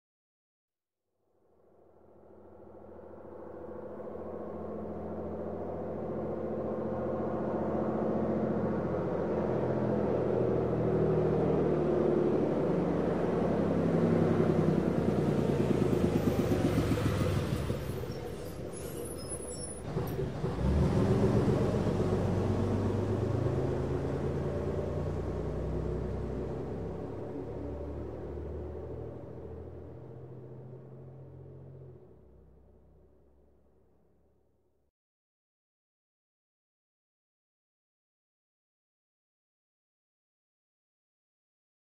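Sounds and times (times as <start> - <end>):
bus engine: 2.2 - 33.5.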